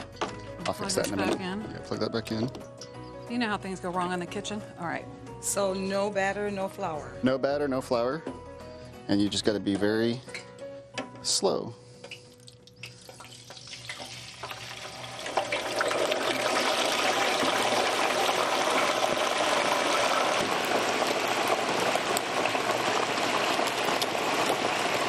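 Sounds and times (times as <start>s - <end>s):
hot oil sizzling and crackling: 11.8s - 25.0s.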